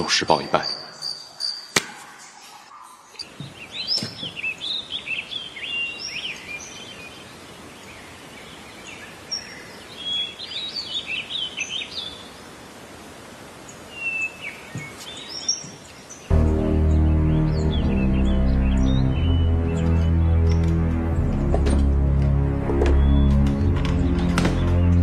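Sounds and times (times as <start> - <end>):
small birds chirping: 0.0 - 12.6, 13.6 - 20.8
steady background hiss: 3.2 - 16.3
music: 16.3 - 25.0.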